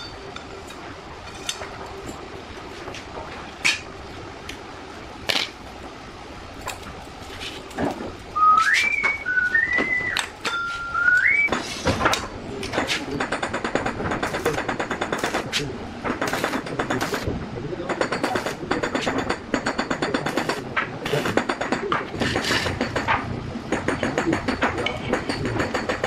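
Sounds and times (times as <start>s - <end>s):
person whistling notes: 8.4s - 11.5s.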